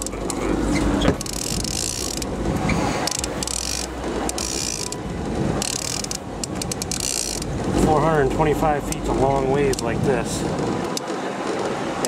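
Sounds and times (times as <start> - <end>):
fishing reel ratcheting clicks: 1.2 - 2.3, 3.0 - 5.0, 5.6 - 7.5.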